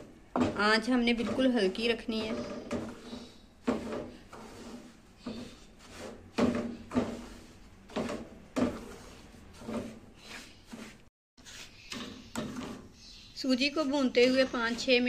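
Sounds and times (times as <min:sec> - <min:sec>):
spatula scraping metal pan: 0:00.0 - 0:15.0.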